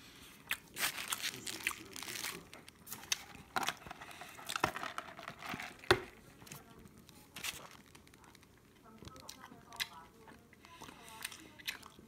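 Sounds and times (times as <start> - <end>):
paper packaging crinkling: 0.7 - 8.6.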